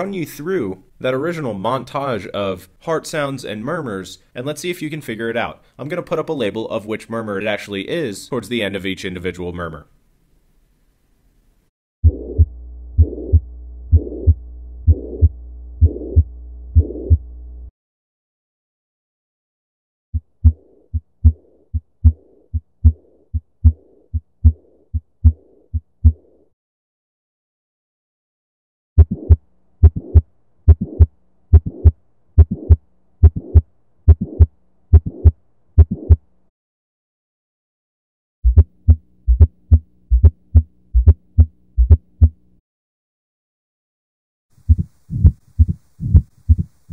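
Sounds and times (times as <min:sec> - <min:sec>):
heartbeat low thuds: 0:12.0 - 0:17.3, 0:20.2 - 0:26.3, 0:29.0 - 0:36.2, 0:38.4 - 0:42.4, 0:44.6 - 0:46.8
rushing heart murmur: 0:12.0 - 0:17.3, 0:20.2 - 0:26.3, 0:29.0 - 0:36.2, 0:38.5 - 0:42.4, 0:44.6 - 0:46.8.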